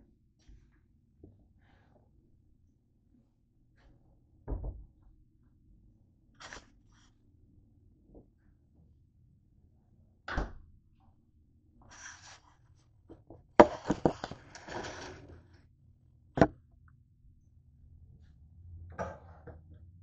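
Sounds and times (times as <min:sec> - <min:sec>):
rustling: 0:13.6 - 0:15.5.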